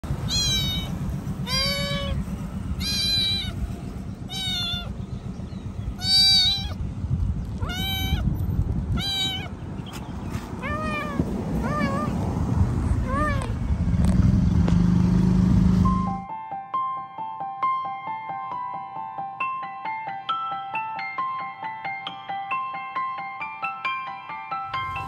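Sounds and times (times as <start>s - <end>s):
kitten meowing high-pitched: 0.2s - 2.2s, 2.8s - 3.6s, 4.3s - 5.0s, 6.0s - 6.8s, 7.6s - 9.6s, 10.6s - 12.2s, 13.0s - 13.6s.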